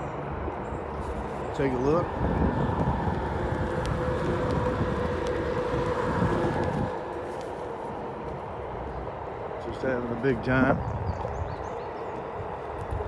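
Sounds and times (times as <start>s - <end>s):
wind and road noise rumble: 0.0s - 13.0s
electric skateboard motor whine: 2.0s - 7.8s.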